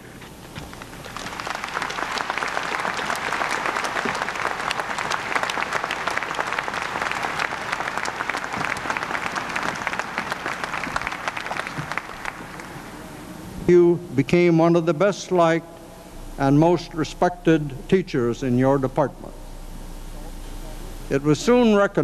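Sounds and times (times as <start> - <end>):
audience applauding: 0.8 - 13.1.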